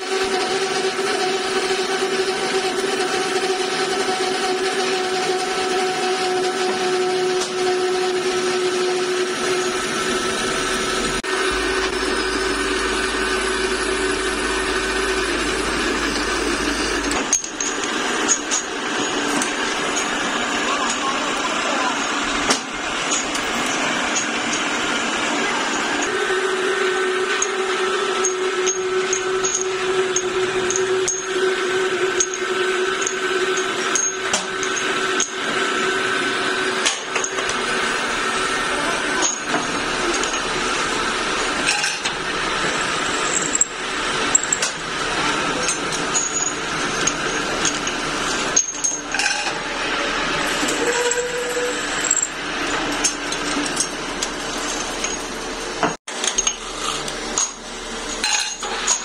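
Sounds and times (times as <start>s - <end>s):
metal lathe running: 0.0s - 59.0s
steel bars clinking and knocking: 16.9s - 21.1s, 43.2s - 49.6s, 57.4s - 59.0s.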